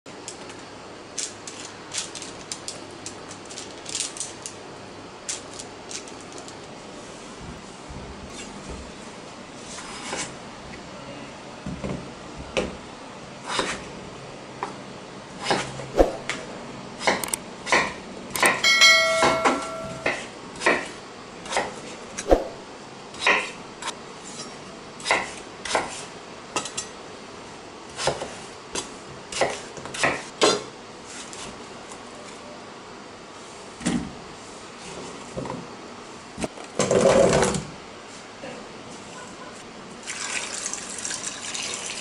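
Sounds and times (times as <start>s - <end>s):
brief metallic ring: 18.4s - 20.2s
knife chopping potatoes on board: 25.1s - 26.0s.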